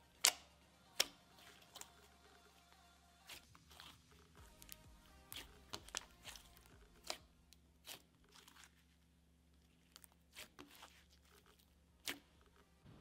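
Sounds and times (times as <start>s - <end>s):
slime squishing wet clicks: 0.1s - 2.1s, 3.3s - 8.8s, 9.6s - 12.5s.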